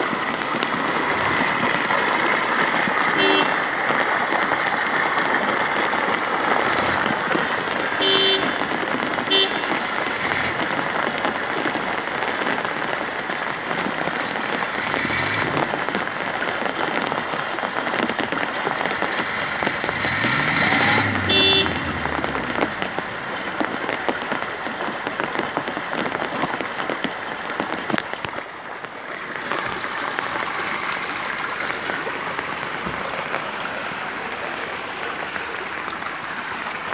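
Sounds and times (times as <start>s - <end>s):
heavy rain on an umbrella: 0.0s - 36.9s
vehicle horn toots: 3.2s - 3.6s, 8.0s - 8.7s, 9.3s - 10.5s, 20.3s - 22.8s
vehicle passing: 19.0s - 23.4s.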